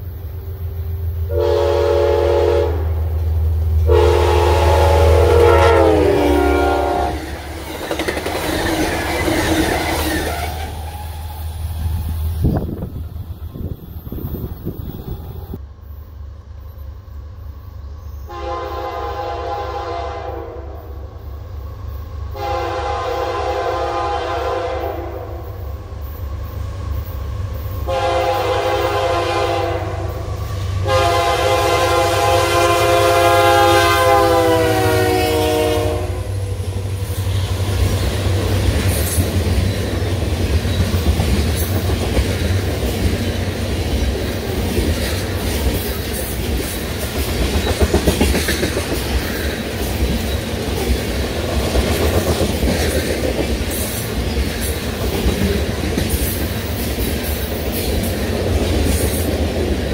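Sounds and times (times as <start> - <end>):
locomotive air horn blasts: 1.3 - 3.0, 3.8 - 7.3, 18.3 - 21.0, 22.4 - 25.6, 27.8 - 36.5
train wheels clacking on rails: 7.2 - 15.3, 36.7 - 59.9.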